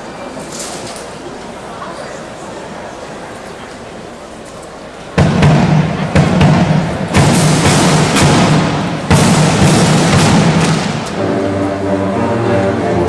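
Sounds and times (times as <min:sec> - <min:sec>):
marching band drums with bass drum: 0:05.2 - 0:11.2.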